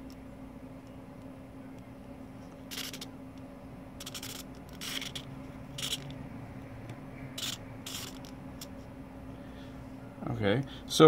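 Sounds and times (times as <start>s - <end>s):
faint steady hum: 0.0s - 11.0s
small servo whirring: 2.7s - 3.1s, 4.0s - 6.2s, 7.4s - 8.7s.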